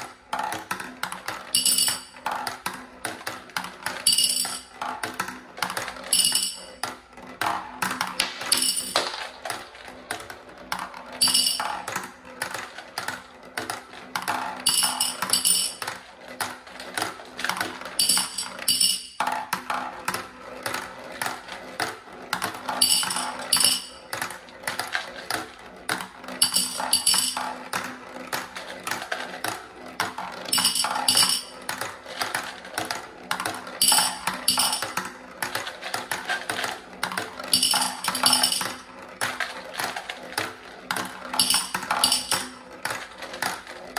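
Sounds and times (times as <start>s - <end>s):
marbles rattling down plastic ramps: 0.0s - 43.9s
marble clinking into glass jar: 8.2s - 9.4s, 11.2s - 11.9s, 14.7s - 15.9s, 18.0s - 19.2s, 22.7s - 24.0s, 26.4s - 27.5s, 30.5s - 31.6s, 33.8s - 35.0s, 37.5s - 38.9s, 41.4s - 42.6s.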